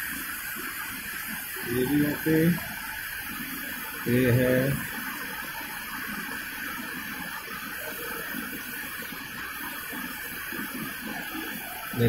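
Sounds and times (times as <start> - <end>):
background hiss: 0.0 - 2.7.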